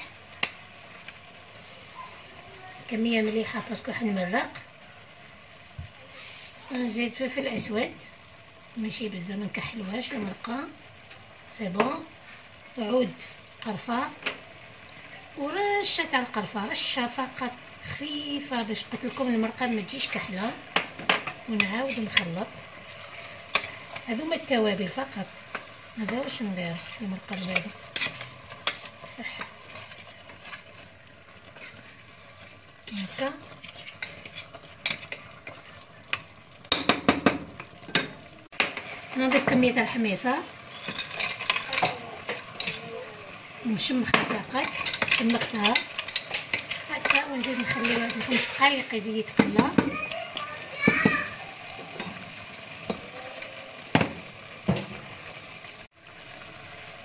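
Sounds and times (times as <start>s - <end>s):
faint frying sizzle: 0.0s - 57.0s
wooden spoon scraping pot: 25.5s - 35.8s, 44.1s - 49.6s.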